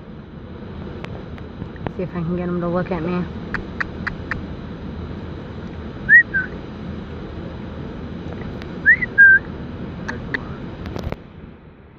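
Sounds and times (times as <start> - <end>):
person whistling two-note call: 6.1 - 6.5, 8.9 - 9.4.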